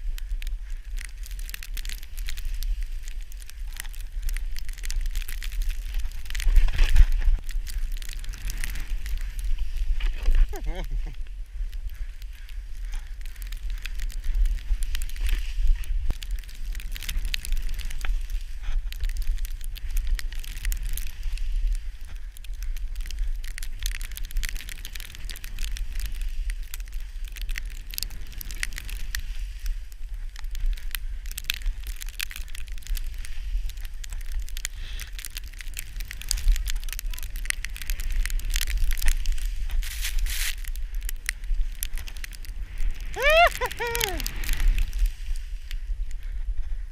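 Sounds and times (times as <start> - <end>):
wind rumble on microphone: 0.0 - 46.9
snowboard hissing through snow: 8.2 - 11.2, 39.2 - 40.6, 42.2 - 45.7.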